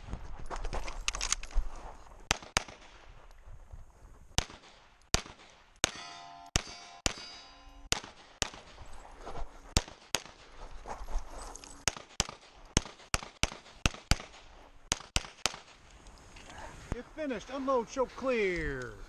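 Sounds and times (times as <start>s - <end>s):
pistol shots: 2.3s - 3.0s, 4.4s - 8.8s, 9.7s - 10.5s, 11.8s - 15.8s.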